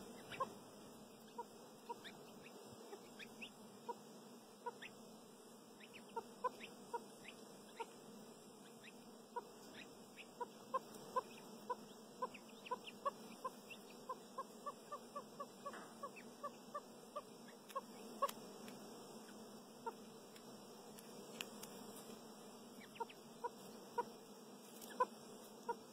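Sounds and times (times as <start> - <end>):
chicks peeping: 0.0 - 0.6, 1.2 - 4.0, 4.6 - 5.0, 5.8 - 8.0, 8.6 - 18.4, 19.2 - 20.0, 22.8 - 24.1, 24.7 - 25.9
partridge hen soft clucks: 0.0 - 0.6, 1.2 - 4.0, 4.6 - 5.0, 5.8 - 8.0, 8.6 - 18.4, 22.8 - 24.2, 24.8 - 25.9.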